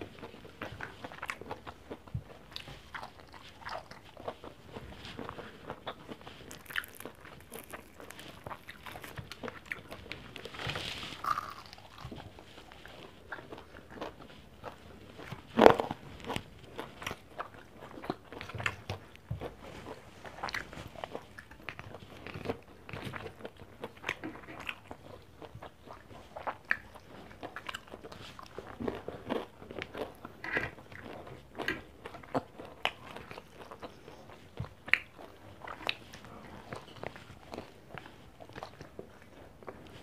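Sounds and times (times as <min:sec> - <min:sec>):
person chewing food: 0:00.0 - 0:40.0
soft crunches: 0:02.6 - 0:14.1.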